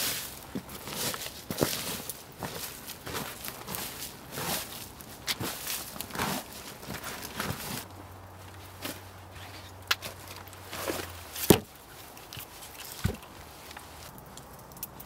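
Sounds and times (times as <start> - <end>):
boots walking on leaves: 0.0 - 14.4
log knocking on log pile: 10.8 - 11.7.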